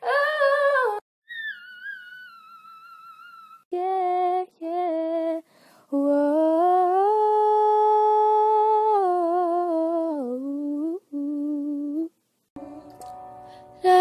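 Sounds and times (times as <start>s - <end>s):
girl singing: 0.0s - 1.0s, 3.7s - 12.9s, 13.8s - 14.0s.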